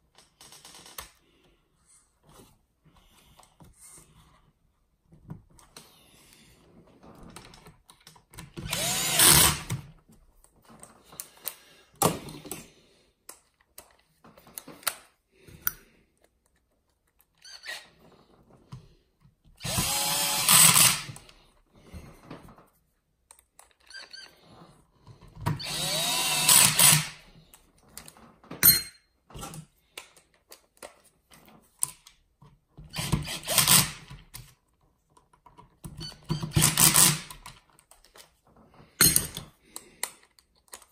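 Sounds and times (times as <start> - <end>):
power screwdriver whirring: 8.6 - 9.8, 19.6 - 21.3, 25.5 - 27.2, 32.9 - 34.1, 36.4 - 37.4.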